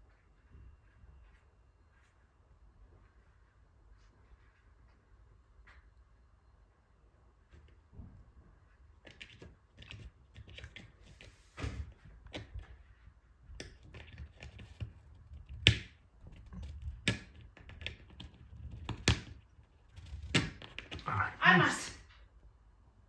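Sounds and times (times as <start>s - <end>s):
cat claws scratching cabinet door: 9.0s - 21.3s.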